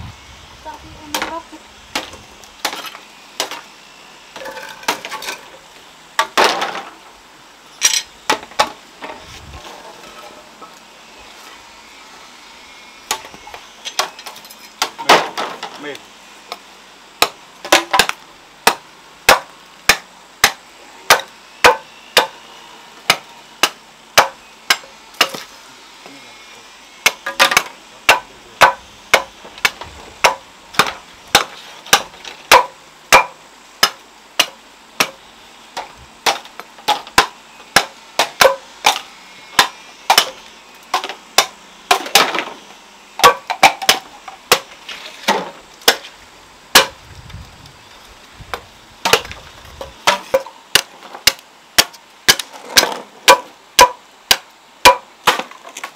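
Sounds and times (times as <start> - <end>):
sharp chopping blows: 46.7 - 47.0.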